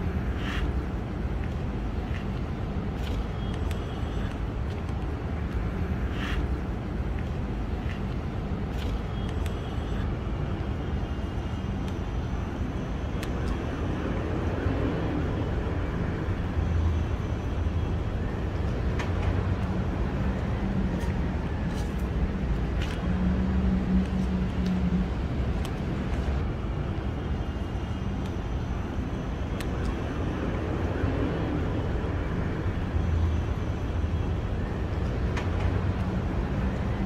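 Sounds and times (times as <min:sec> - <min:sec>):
city traffic rumble: 0:00.0 - 0:37.0.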